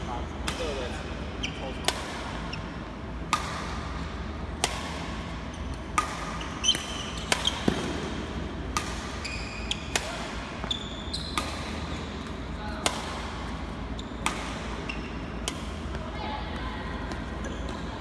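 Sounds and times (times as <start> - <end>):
shoes squeaking on court floor: 1.4 - 2.8, 5.4 - 7.9, 9.1 - 10.0, 10.6 - 12.4, 13.8 - 14.2, 14.8 - 15.2, 17.2 - 18.0
racket hitting shuttlecock: 1.8 - 2.4, 3.2 - 13.6, 14.2 - 16.0.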